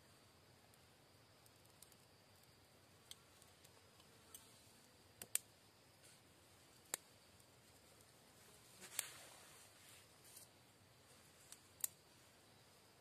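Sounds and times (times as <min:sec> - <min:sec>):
dry twigs snapping: 0:05.2 - 0:05.5.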